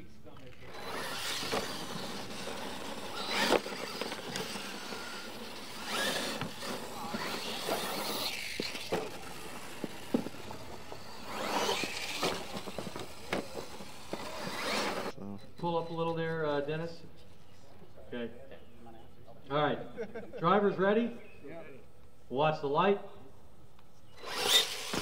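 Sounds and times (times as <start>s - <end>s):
toy truck motors whirring: 0.4s - 16.2s, 24.0s - 25.0s.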